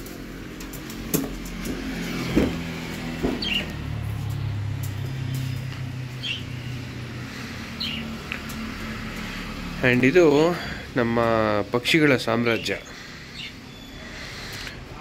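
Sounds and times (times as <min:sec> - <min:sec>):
small birds chirping: 0:03.1 - 0:15.0.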